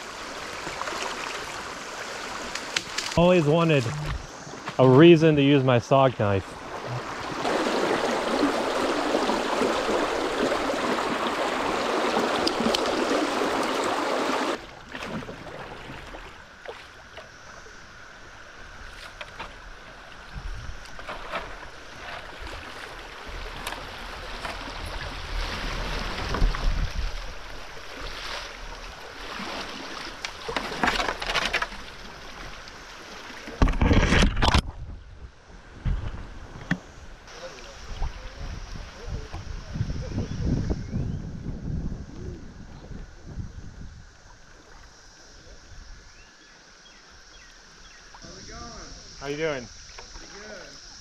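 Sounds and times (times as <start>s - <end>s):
river water rushing: 0.0s - 3.9s, 6.2s - 16.4s
kayak and paddle knocks and splashes: 6.6s - 17.3s, 20.4s - 32.6s, 33.3s - 35.0s.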